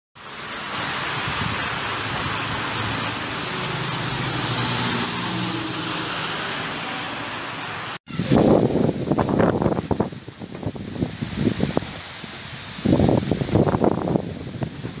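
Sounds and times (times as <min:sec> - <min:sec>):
outdoor background hiss: 0:00.2 - 0:15.0.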